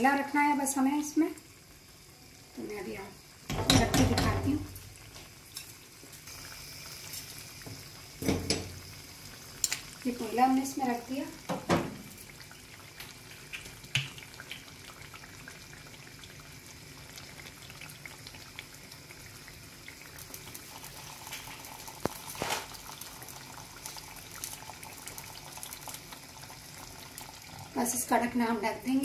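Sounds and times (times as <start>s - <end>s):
curry simmering: 0.0s - 29.0s
oil sizzling on hot charcoal: 0.0s - 29.0s.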